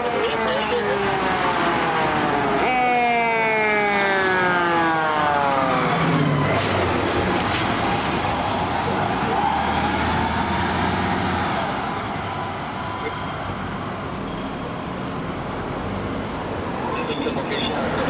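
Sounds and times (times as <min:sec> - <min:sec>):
fire engine siren winding down: 0:00.0 - 0:14.2
diesel engine rumbling: 0:04.1 - 0:18.0.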